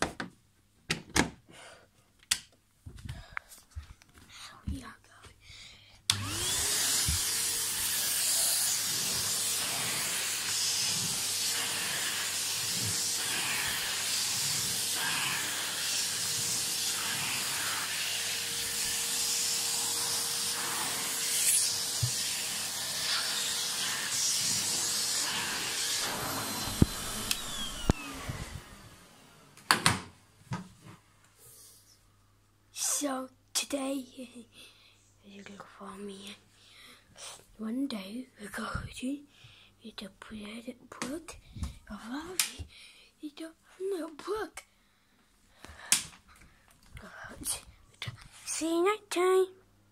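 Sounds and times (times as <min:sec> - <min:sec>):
vacuum cleaner running on carpet: 0:06.1 - 0:29.7
vacuum motor winding down: 0:06.1 - 0:29.7.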